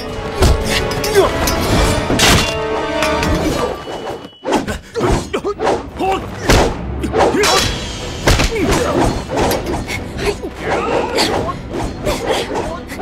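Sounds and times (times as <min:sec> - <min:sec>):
fighters shouting and grunting: 0:00.4 - 0:02.2, 0:04.5 - 0:13.0.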